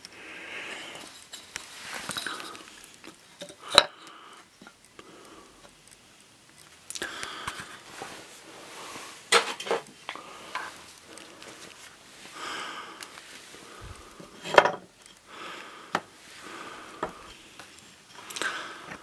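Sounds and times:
clattering knocks of hard objects: 0:14.4 - 0:14.9.

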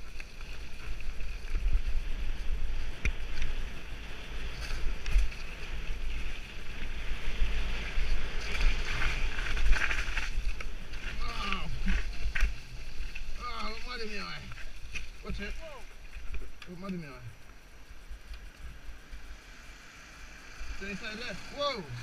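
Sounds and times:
tyres rolling over dirt: 0:00.0 - 0:16.2
wind buffeting microphone: 0:00.0 - 0:16.6.

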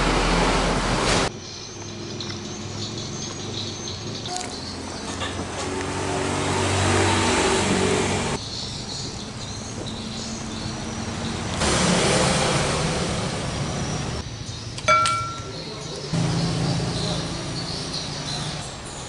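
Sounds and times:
ladle clinking on ceramic bowl: 0:14.9 - 0:15.5.

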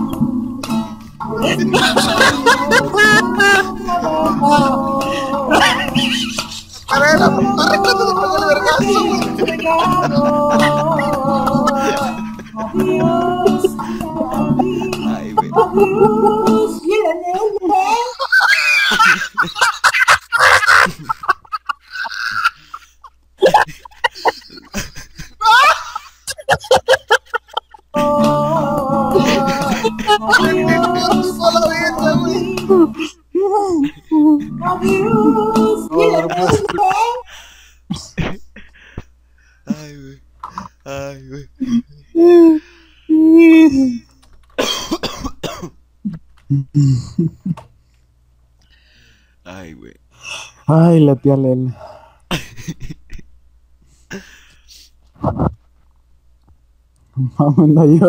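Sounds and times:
people laughing: 0:01.2 - 0:16.8, 0:17.8 - 0:33.2, 0:33.8 - 0:37.3
person coughing hard: 0:44.6 - 0:45.7.

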